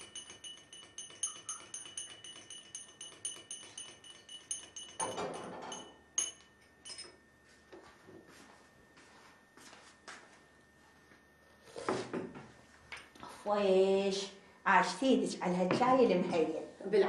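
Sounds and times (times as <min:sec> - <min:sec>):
teaspoon clinking against glass cup: 0:00.0 - 0:07.2.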